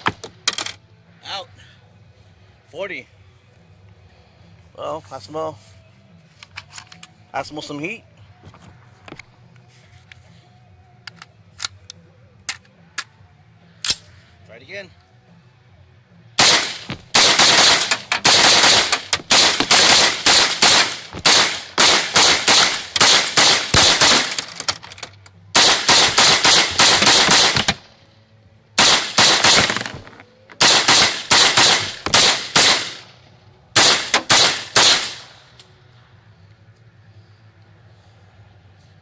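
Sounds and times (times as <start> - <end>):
rifle shots in rapid strings: 16.4 - 24.7, 25.6 - 27.8, 28.8 - 33.1, 33.8 - 35.4.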